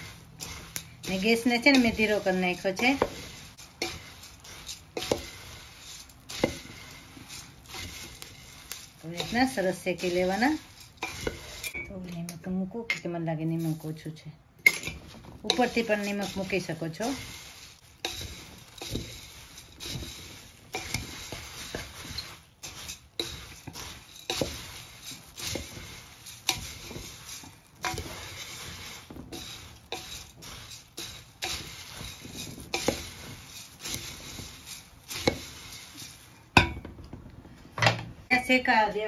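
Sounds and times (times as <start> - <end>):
dry rustle of grains: 0.0 - 11.8, 14.8 - 36.6
spoon scraping and knocking pot: 0.0 - 38.1.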